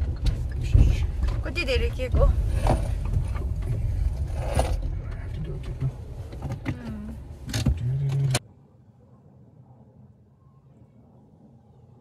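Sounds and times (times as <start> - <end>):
car cabin rumble: 0.0 - 8.4.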